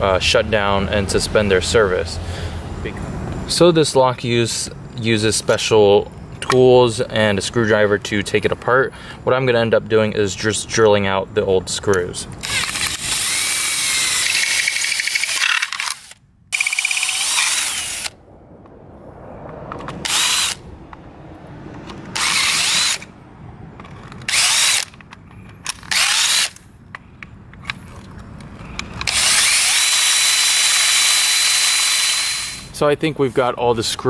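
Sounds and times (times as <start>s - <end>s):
cordless drill drilling screws: 12.4s - 18.1s, 20.0s - 20.6s, 22.1s - 23.1s, 24.2s - 24.9s, 25.7s - 26.6s, 29.0s - 32.7s.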